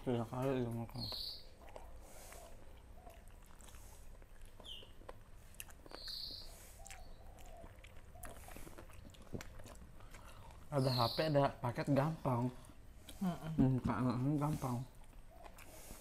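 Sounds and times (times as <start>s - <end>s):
people chewing: 0.0s - 16.0s
bird chirping: 0.7s - 3.3s, 4.6s - 5.1s, 5.8s - 8.6s, 10.7s - 11.6s
lip smacks: 0.7s - 10.7s, 14.4s - 16.0s.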